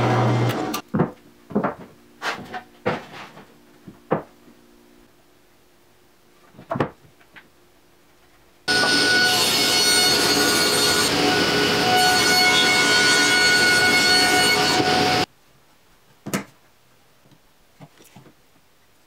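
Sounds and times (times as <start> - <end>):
table saw running: 0.0 - 0.8, 8.7 - 15.2.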